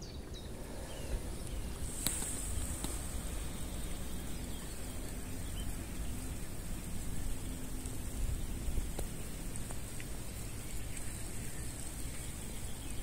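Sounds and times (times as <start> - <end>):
low rumble and hiss: 0.0 - 13.0
thin high hiss: 0.0 - 13.0
faint clicks: 1.4 - 4.0, 8.8 - 12.5.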